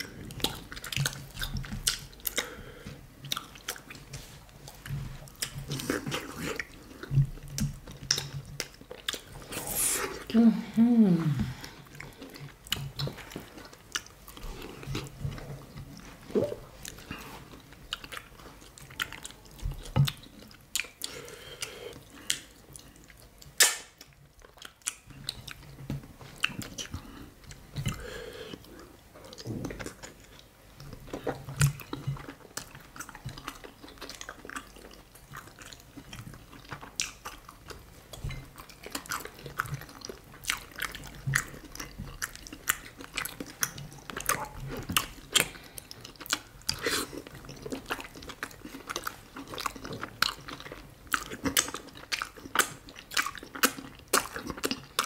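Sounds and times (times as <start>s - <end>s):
chewing and wet mouth sounds: 0.0s - 55.0s
lip smacks and mouth clicks: 3.2s - 9.6s, 17.8s - 28.0s, 38.6s - 55.0s.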